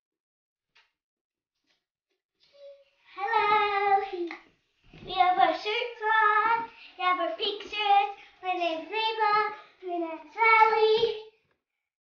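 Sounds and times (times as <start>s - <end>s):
girl singing: 2.6s - 11.4s.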